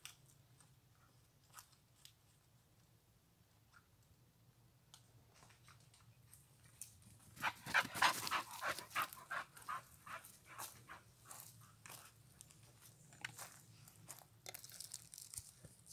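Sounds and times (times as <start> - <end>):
footsteps crunching on forest path: 7.5 - 15.6.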